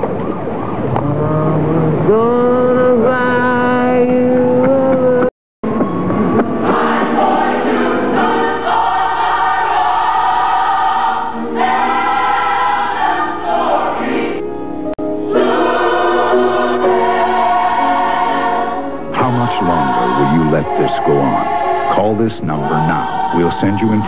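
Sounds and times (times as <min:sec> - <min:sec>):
gospel choir singing: 0:05.9 - 0:24.0.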